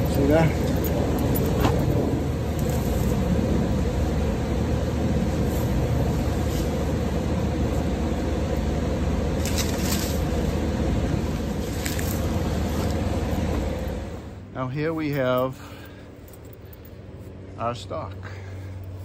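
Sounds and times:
machine humming: 0.0 - 14.6
corn stalks rustling: 9.4 - 10.6, 11.2 - 13.2.

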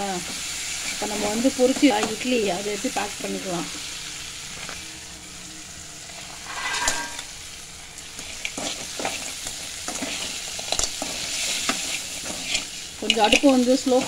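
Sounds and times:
food sizzling in a pan: 0.0 - 14.0
metal ladle scraping a pan: 6.2 - 7.5.

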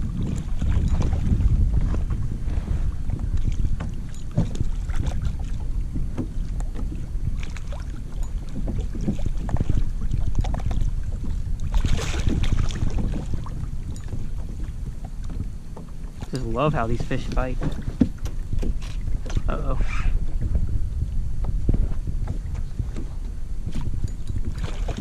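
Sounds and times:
gear knocking against boat: 0.0 - 25.0
water lapping at kayak hull: 0.0 - 25.0
wind buffeting microphone: 0.0 - 25.0.

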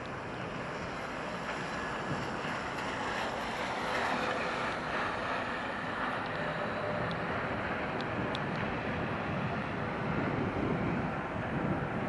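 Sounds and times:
tram passing on wet rails: 0.0 - 11.8
wind on microphone: 0.0 - 12.0.

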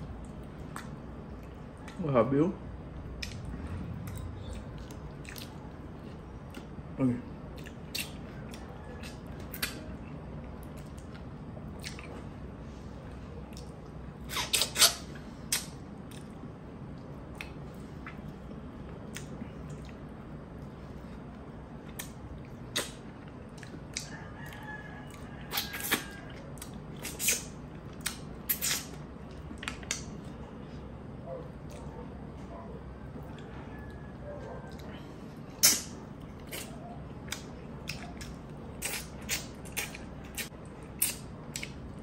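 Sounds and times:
wet eating smacks and sucks: 3.1 - 5.7, 7.5 - 10.0, 13.5 - 16.4, 21.8 - 24.1, 25.5 - 30.3, 35.5 - 42.0.

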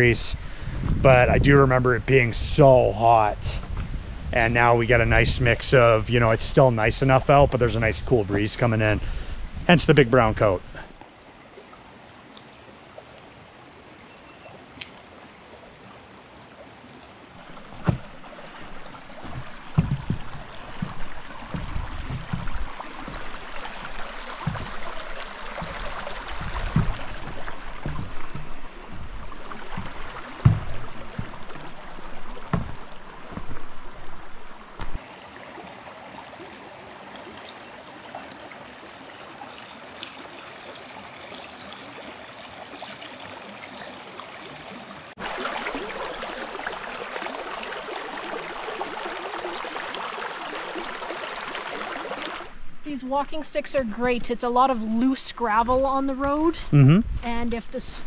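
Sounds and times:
stream rushing over rocks: 15.0 - 52.6
low thumps: 19.2 - 33.8.

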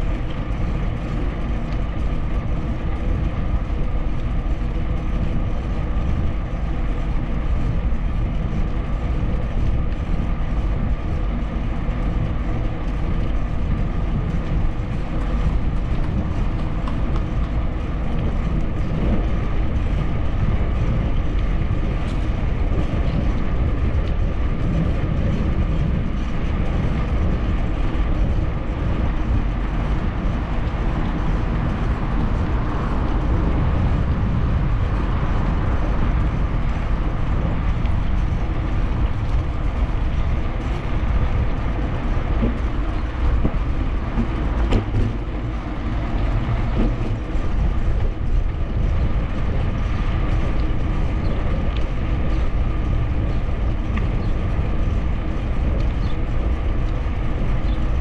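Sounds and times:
bicycle tyres rolling on pavement: 0.0 - 58.0
wind buffeting microphone: 0.0 - 58.0.

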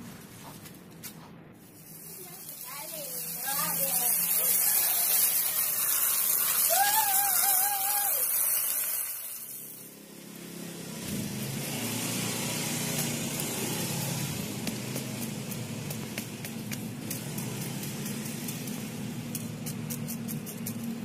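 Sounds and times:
low rushing noise: 0.0 - 2.7
hose water spraying: 1.6 - 21.0.

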